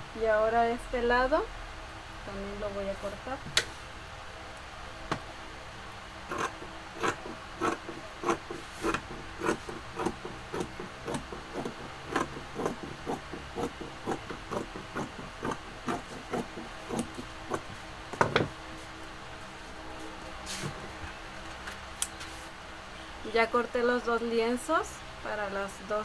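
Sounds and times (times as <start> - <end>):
scissors cutting fabric: 6.3 - 17.7.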